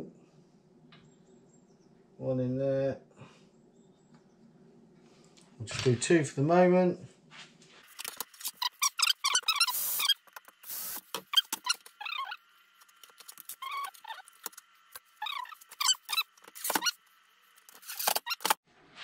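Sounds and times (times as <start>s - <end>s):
squeaky chirps: 8.4s - 10.3s, 11.2s - 12.5s, 13.2s - 17.0s, 17.8s - 18.6s.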